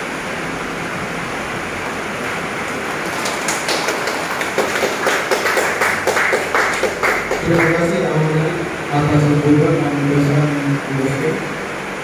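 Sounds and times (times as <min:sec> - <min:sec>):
room noise hiss in a hall: 0:00.0 - 0:12.0
hand claps: 0:03.0 - 0:07.8.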